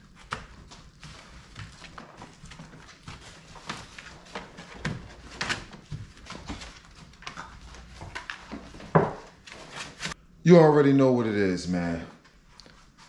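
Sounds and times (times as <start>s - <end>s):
puppy claws scratching plastic: 0.0s - 10.2s.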